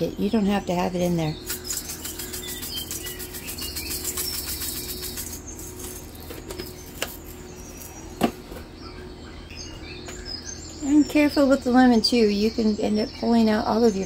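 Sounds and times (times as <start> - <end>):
spice shaker rattling: 1.4 - 8.0.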